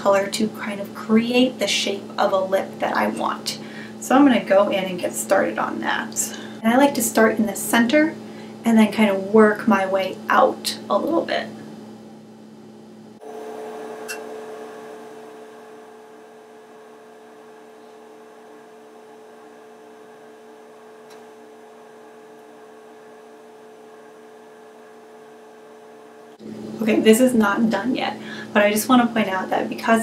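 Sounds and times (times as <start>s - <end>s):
steady electrical hum with hiss: 0.0s - 30.0s.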